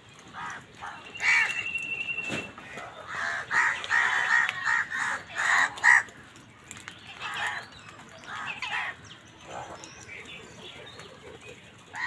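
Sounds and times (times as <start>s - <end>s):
crows cawing: 0.3s - 1.6s, 2.7s - 6.2s.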